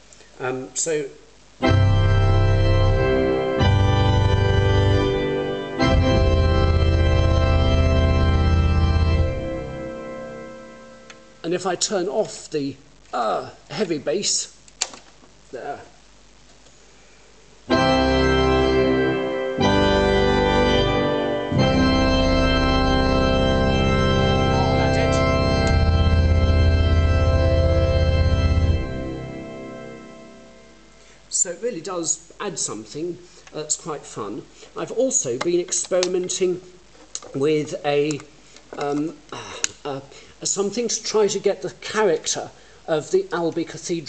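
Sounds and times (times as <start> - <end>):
heavy pedal bass: 1.6 - 11.4, 17.7 - 31.0
church organ full chords: 1.6 - 11.6, 17.6 - 31.4.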